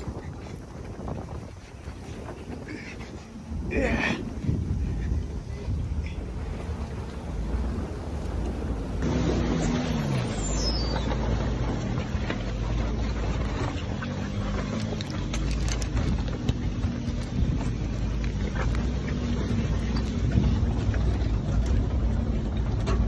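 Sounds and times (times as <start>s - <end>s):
car engine running: 6.0s - 23.0s
stones clicking under tyres: 7.9s - 23.0s.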